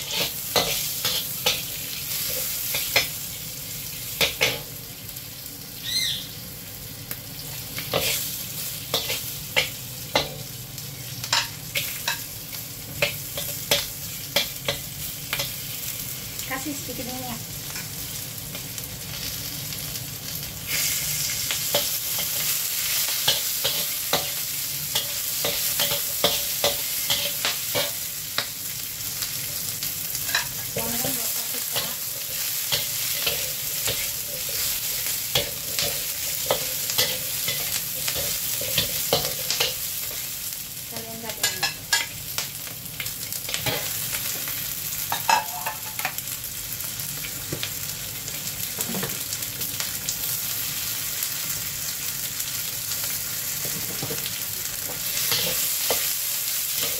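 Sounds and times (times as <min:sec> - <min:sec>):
metal spatula scraping a wok: 0:00.0 - 0:03.0, 0:31.8 - 0:39.8
vegetables sizzling in hot oil: 0:00.0 - 0:56.9.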